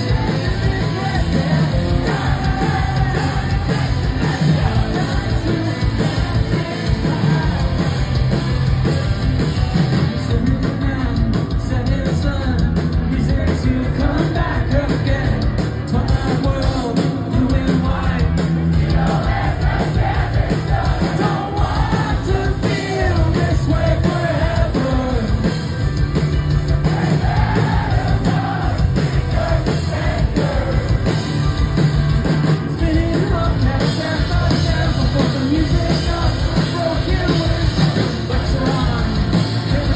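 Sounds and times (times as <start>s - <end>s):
person singing: 0.0s - 8.4s, 32.8s - 39.9s
bass guitar: 0.0s - 39.9s
distorted electric guitars: 0.0s - 39.9s
drums: 0.0s - 39.9s.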